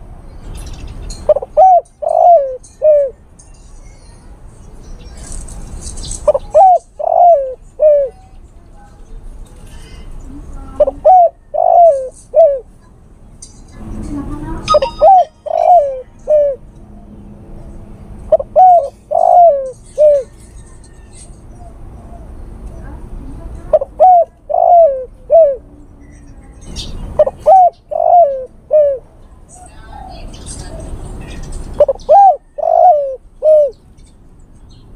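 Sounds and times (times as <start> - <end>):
dove cooing: 1.3 - 3.2, 6.2 - 8.3, 10.7 - 12.7, 14.7 - 20.7, 23.7 - 25.8, 27.2 - 33.8.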